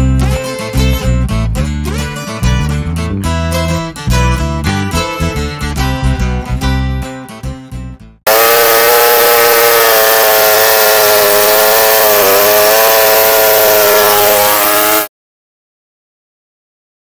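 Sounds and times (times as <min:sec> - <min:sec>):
chainsaw cutting log: 0:08.3 - 0:15.1.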